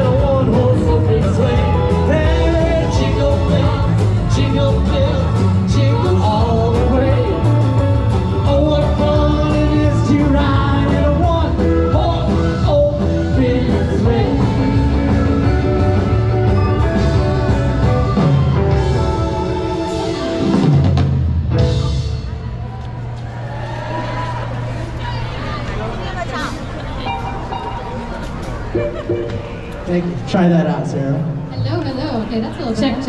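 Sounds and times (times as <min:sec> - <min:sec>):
lead singer singing: 0:00.0 - 0:16.0
live rock band playing: 0:00.0 - 0:22.6, 0:27.0 - 0:29.9.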